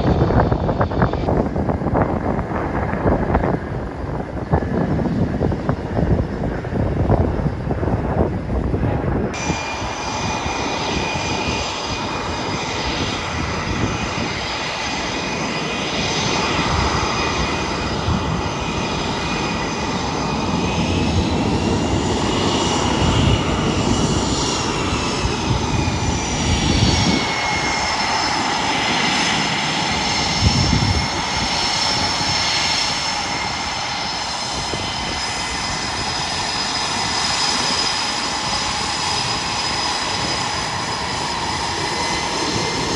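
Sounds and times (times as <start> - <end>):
high turbine whines: 0.0 - 42.9
jet engine roar: 0.0 - 42.9.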